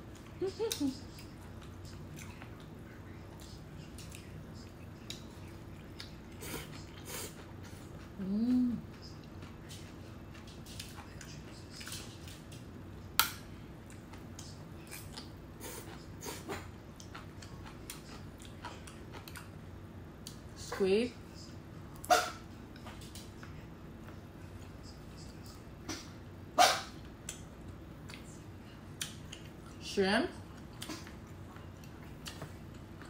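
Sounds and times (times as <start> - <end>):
chewing: 0.0 - 8.2, 8.8 - 12.7, 13.8 - 19.6, 27.0 - 33.0.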